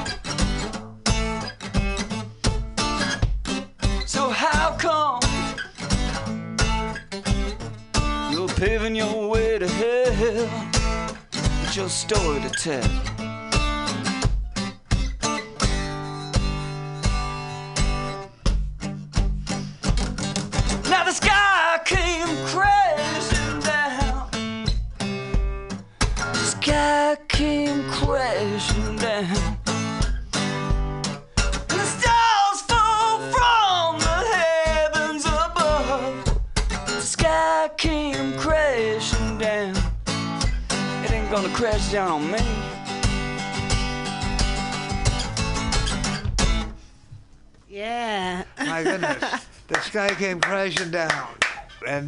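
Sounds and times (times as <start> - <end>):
acoustic guitar strumming: 0.0 - 52.0
man singing with vibrato: 4.0 - 5.4, 8.2 - 10.8, 11.5 - 13.0, 20.8 - 24.4, 26.4 - 29.6, 31.7 - 36.4, 37.0 - 40.0, 41.0 - 42.8.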